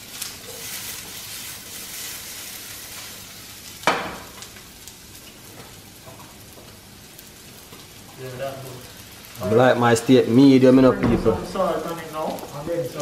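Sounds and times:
onions sizzling in a frying pan: 0.0s - 13.0s
sharp knock: 10.8s - 11.7s.

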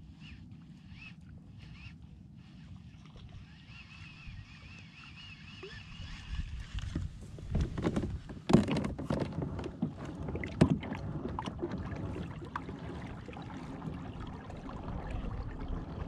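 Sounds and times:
low rumble: 10.4s - 16.0s.

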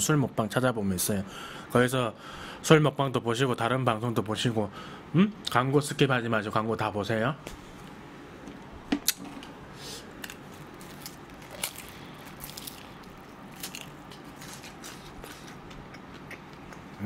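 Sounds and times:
crunchy bites: 10.2s - 17.0s
wet chewing clicks: 11.0s - 17.0s.

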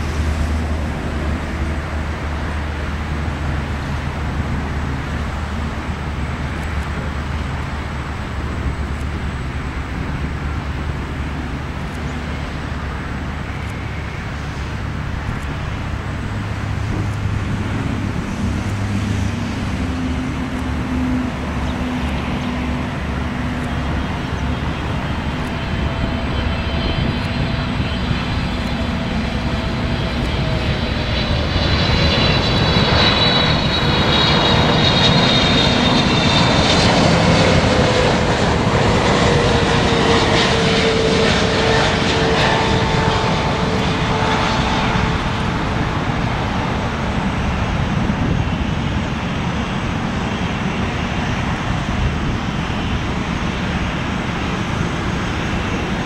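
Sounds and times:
jet airliner roar passing: 0.0s - 56.0s.

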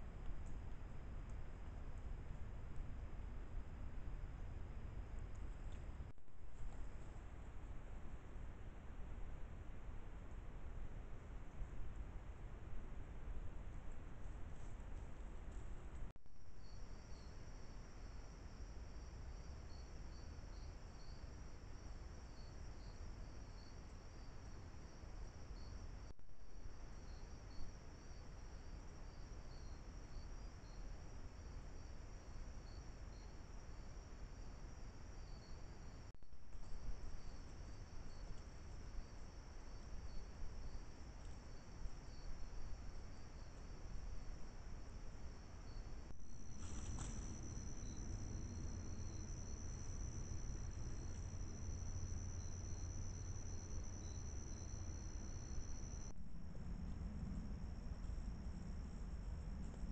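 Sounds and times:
low background hiss: 0.0s - 59.9s
crickets chirping: 16.4s - 59.9s.

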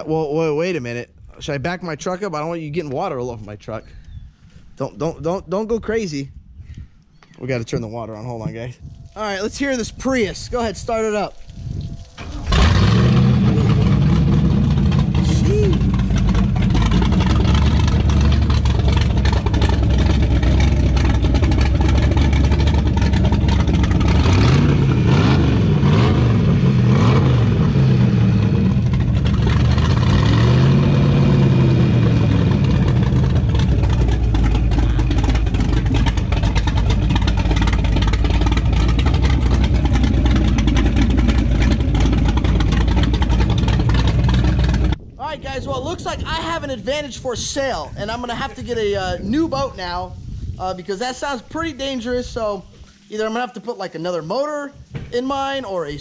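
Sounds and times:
loud boat engine revving: 12.2s - 45.0s.

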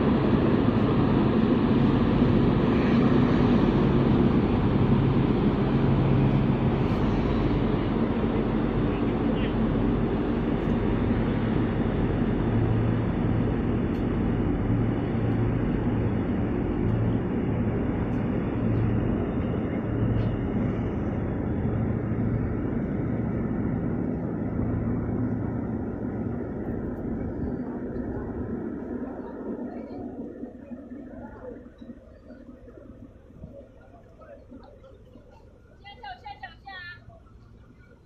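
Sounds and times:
churning wake rushing: 0.0s - 35.8s
ship engine droning: 0.0s - 38.0s.

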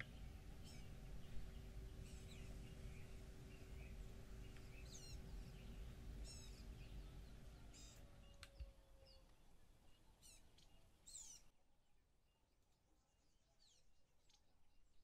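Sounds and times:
low hum: 0.0s - 10.8s
faint bird chirps: 0.0s - 11.6s, 12.3s - 15.0s.

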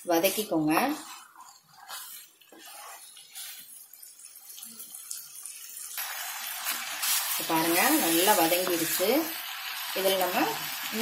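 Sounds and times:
food sizzling in a pan: 0.0s - 11.0s
wooden spatula scraping: 0.2s - 4.1s.

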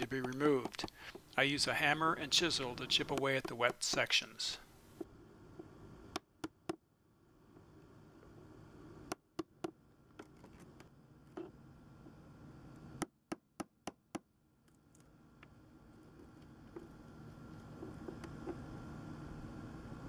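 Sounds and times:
hammer striking steel chisel: 0.0s - 1.2s.

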